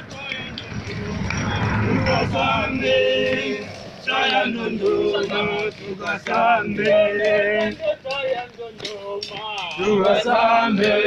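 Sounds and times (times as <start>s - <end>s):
men singing a marching chant: 0.0s - 11.0s.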